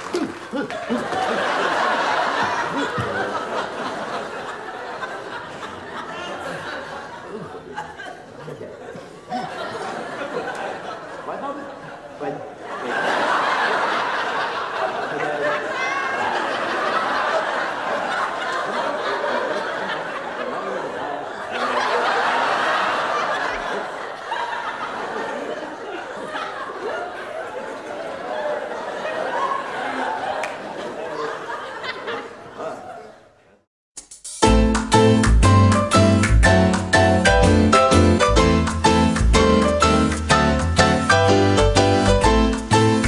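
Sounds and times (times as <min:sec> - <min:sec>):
audience laughter: 0:00.0 - 0:33.3.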